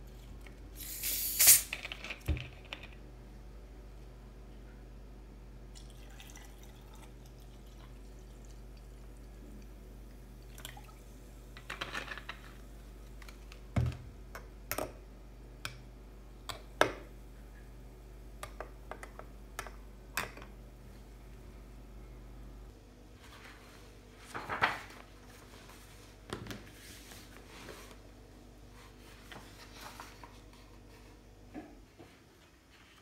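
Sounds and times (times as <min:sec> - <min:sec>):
water pouring into a glass: 0:05.8 - 0:09.4, 0:10.4 - 0:11.0.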